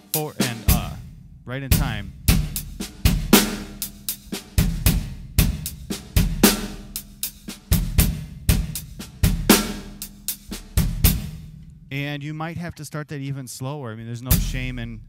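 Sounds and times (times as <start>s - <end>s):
snare drum strokes: 0.0s - 1.0s, 1.8s - 11.5s
hi-hat shuffle pattern: 0.0s - 12.0s
bass drum kicks: 0.6s - 3.7s, 4.4s - 6.7s, 7.8s - 9.8s, 10.6s - 12.0s, 14.3s - 15.0s.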